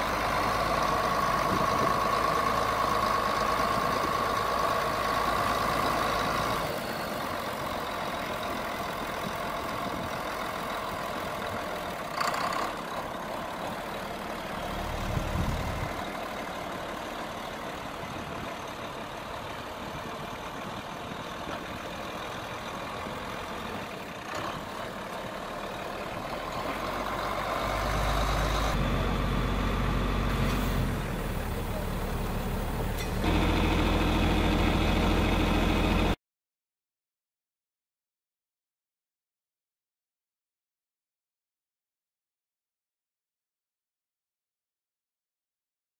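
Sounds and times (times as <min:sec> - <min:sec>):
tractor diesel engine running: 0:00.0 - 0:36.2.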